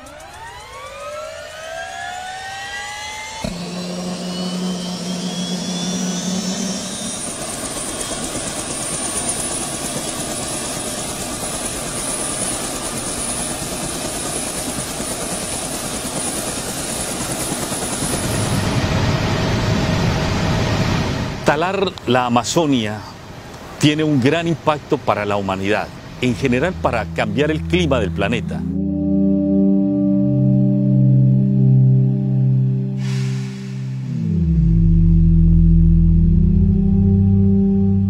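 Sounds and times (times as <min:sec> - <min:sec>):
helicopter turbine and rotor: 0:00.0 - 0:21.9
high thin whine: 0:03.4 - 0:07.5, 0:25.4 - 0:29.4, 0:30.9 - 0:34.8.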